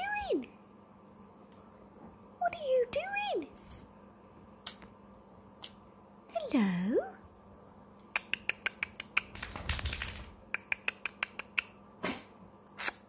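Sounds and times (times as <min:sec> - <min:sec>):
parrot clicking beak: 0:08.0 - 0:09.5, 0:10.5 - 0:11.8.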